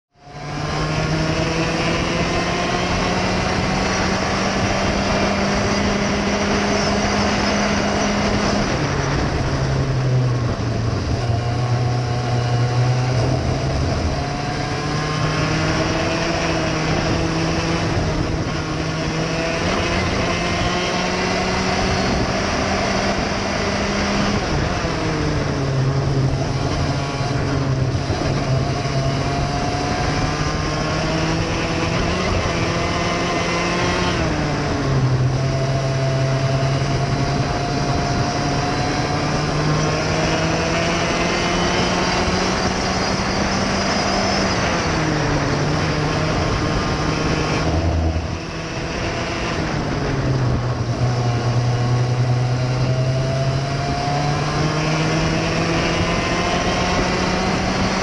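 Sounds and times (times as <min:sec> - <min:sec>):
racing kart engine: 0:00.1 - 0:58.0.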